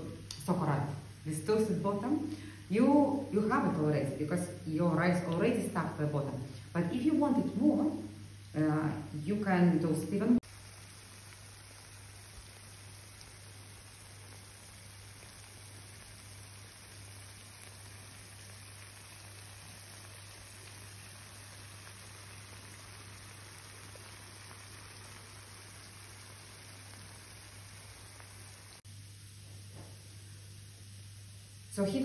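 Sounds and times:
pan sizzling and crackling: 10.4s - 32.0s.

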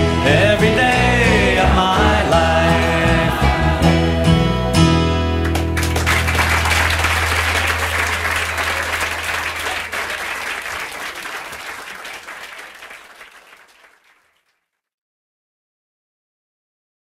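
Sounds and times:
audience applauding: 5.4s - 14.4s.

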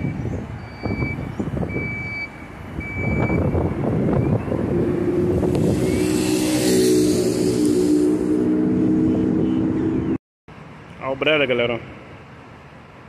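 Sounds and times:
reversing alarm beeps: 0.0s - 4.5s
bus diesel engine: 0.0s - 10.9s
hiss: 5.5s - 8.4s.

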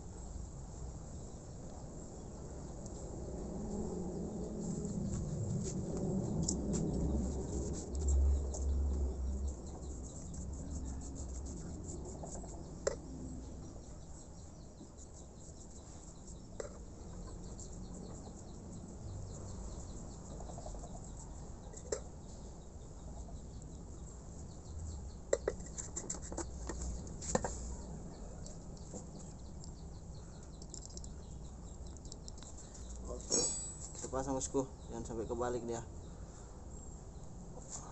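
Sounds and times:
insects chirping: 28.8s - 35.5s
clicks and taps of metal parts: 30.6s - 31.1s.

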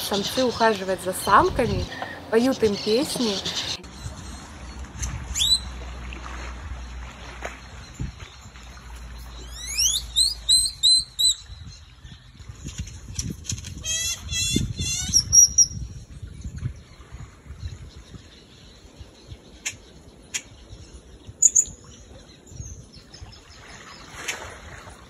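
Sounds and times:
bird whistling: 5.4s - 5.7s, 9.4s - 11.6s.

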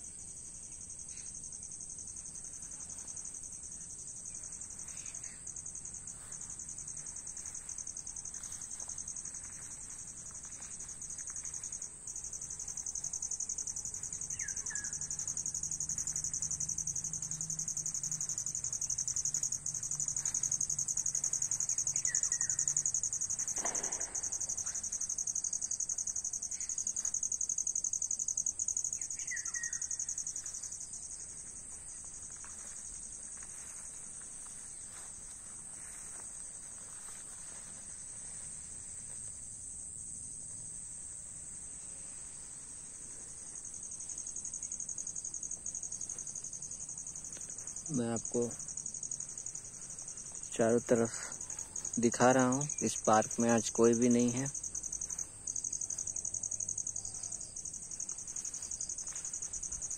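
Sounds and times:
insects chorus: 0.0s - 59.9s
bird chirping: 14.3s - 15.2s.

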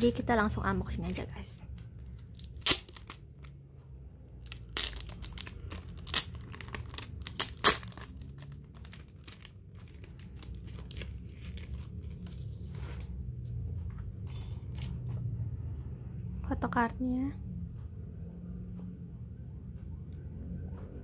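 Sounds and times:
packaging rustling and crackling: 2.0s - 3.6s, 4.4s - 13.1s, 14.2s - 15.2s
packaging ripping: 2.3s - 3.2s, 4.4s - 12.2s.

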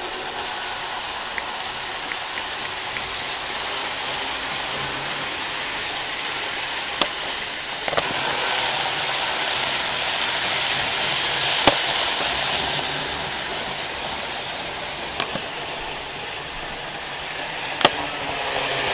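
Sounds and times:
model train motor whirring: 0.0s - 18.9s
sharp clicks: 15.2s - 15.6s.

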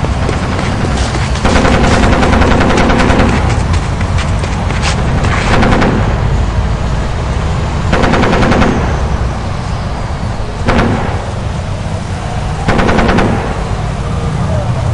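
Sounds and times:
steady low rumble: 0.0s - 14.9s
machine-gun fire: 0.3s - 4.0s, 5.3s - 6.2s, 7.9s - 9.0s, 10.6s - 11.5s, 12.7s - 13.7s.

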